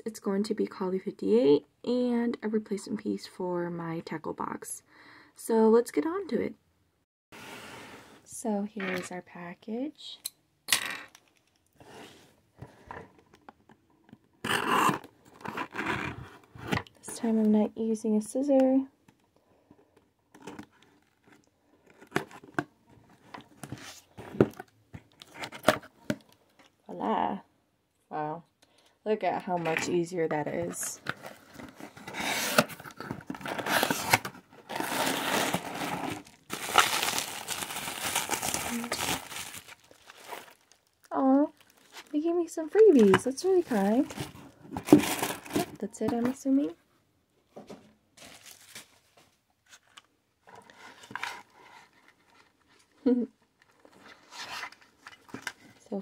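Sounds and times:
cardboard package handled: 0:30.9 - 0:42.1, 0:42.8 - 0:46.2, 0:48.2 - 0:50.0
bubble wrap crinkling: 0:32.3 - 0:45.7, 0:48.2 - 0:49.8.

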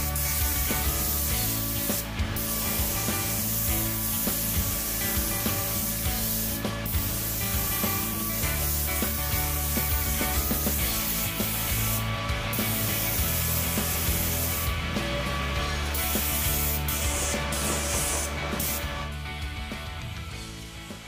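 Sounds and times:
spray gun hissing: 0:00.0 - 0:14.8, 0:15.9 - 0:19.0
background music with beat: 0:00.0 - 0:21.0.

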